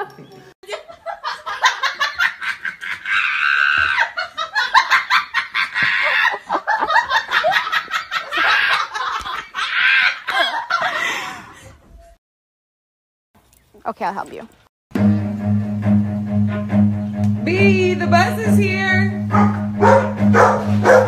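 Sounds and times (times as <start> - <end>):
person laughing hard: 0.6 - 11.5.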